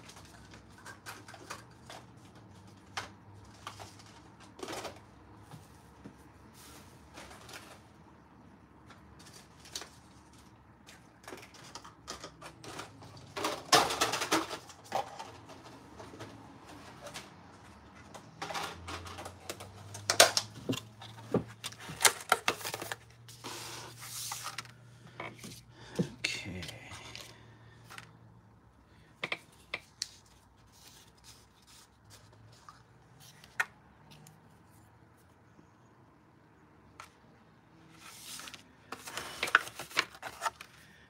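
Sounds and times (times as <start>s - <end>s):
plastic bottles clattering on table: 11.2s - 16.4s, 18.1s - 23.0s.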